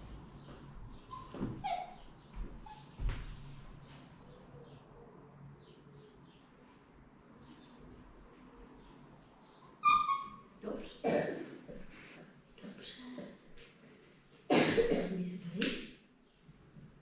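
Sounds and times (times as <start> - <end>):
puppy squeaking: 0.2 - 4.1, 9.0 - 10.6.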